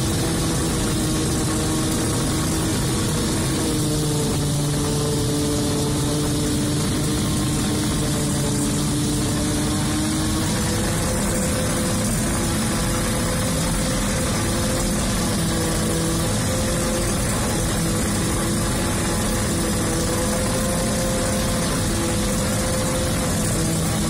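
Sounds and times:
harvester engine drone: 0.0s - 24.0s.

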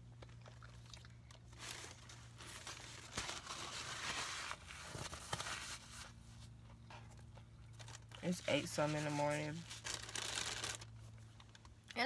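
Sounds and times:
paper packaging rustling: 1.4s - 6.3s, 7.1s - 11.8s.

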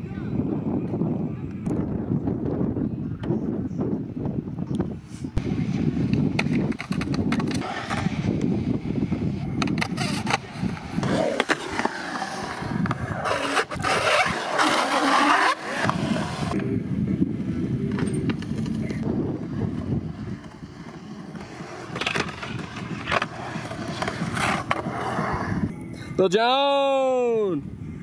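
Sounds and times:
skateboard wheels rolling on concrete: 4.0s - 25.9s
skateboard grinding on coping: 6.3s - 16.6s, 18.0s - 25.7s.

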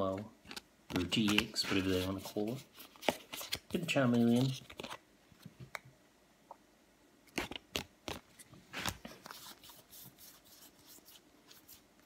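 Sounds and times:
cards sliding and rustling: 0.9s - 5.0s, 7.4s - 11.9s.

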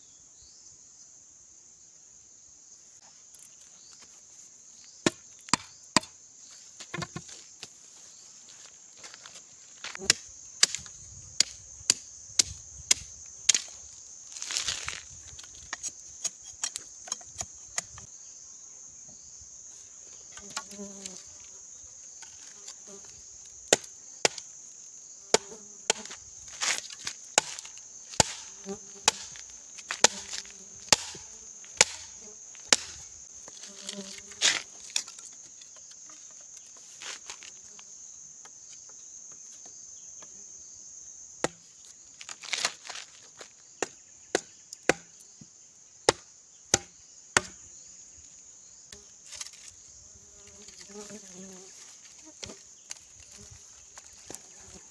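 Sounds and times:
insects buzzing: 0.0s - 54.9s
blade chopping bamboo: 10.0s - 13.7s, 25.3s - 33.0s, 43.8s - 45.1s, 46.1s - 47.6s.

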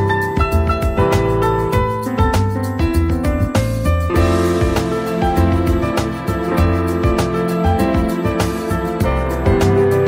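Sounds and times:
instrumental background music: 0.0s - 10.0s.

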